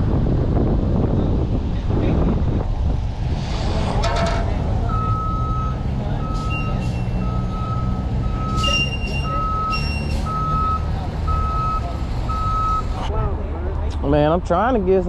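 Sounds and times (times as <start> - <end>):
low engine rumble: 0.0 - 15.0
reversing alarm beeping: 4.9 - 13.0.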